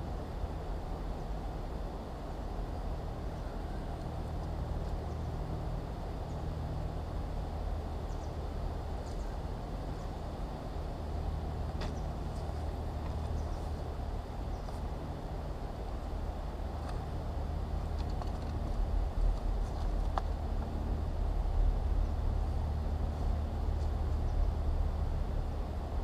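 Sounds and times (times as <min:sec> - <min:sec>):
distant road traffic rumble: 0:00.0 - 0:26.0.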